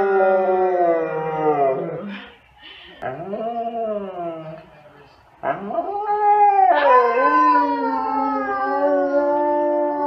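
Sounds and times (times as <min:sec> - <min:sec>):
dog howling: 0:05.5 - 0:10.0
woman howling: 0:05.8 - 0:10.0.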